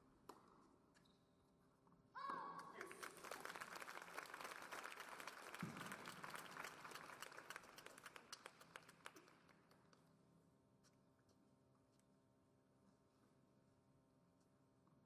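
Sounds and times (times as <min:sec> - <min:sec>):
audience clapping: 0:02.6 - 0:10.0.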